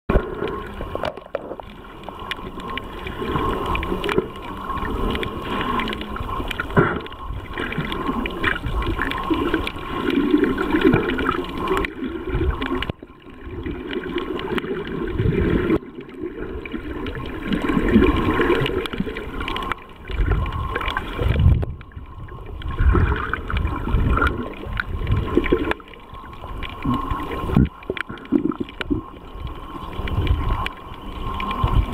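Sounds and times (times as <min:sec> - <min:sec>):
faint steady whine: 0:00.1 - 0:31.9
underwater gurgling bubbles: 0:00.1 - 0:31.9.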